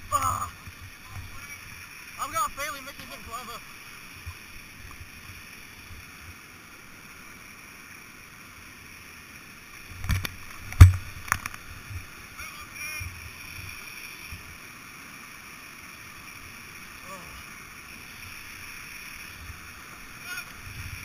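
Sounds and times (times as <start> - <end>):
rushing whitewater: 0.0 - 21.0
paddle and hull knocks and splashes: 10.1 - 11.5.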